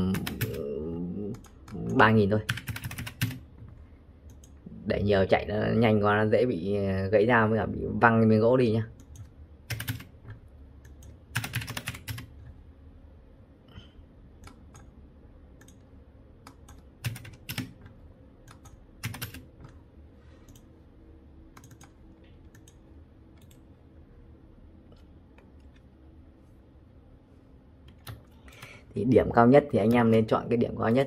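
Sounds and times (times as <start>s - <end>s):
keyboard typing: 0.0s - 4.6s, 8.9s - 12.6s, 14.4s - 14.9s, 15.6s - 19.8s, 21.5s - 23.7s, 27.8s - 28.8s
faint steady hum: 0.0s - 31.0s.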